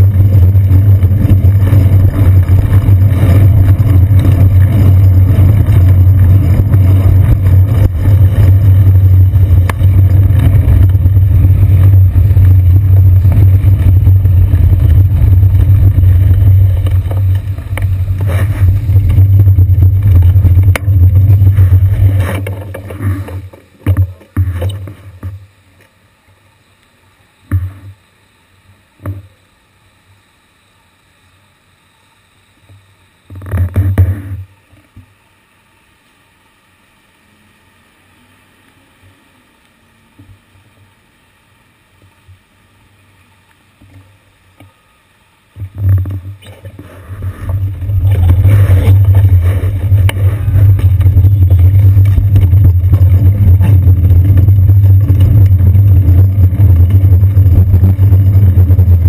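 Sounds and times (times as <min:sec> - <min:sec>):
bicycle rumbling over wet streets: 0:00.0 - 0:25.4, 0:45.6 - 0:59.0.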